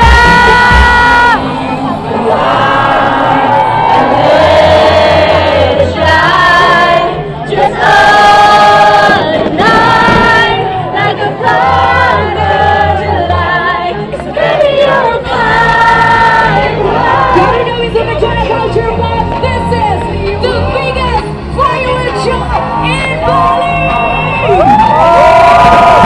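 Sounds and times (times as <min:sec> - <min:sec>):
choir singing long notes: 0:00.0 - 0:20.8
steady bass: 0:00.0 - 0:26.0.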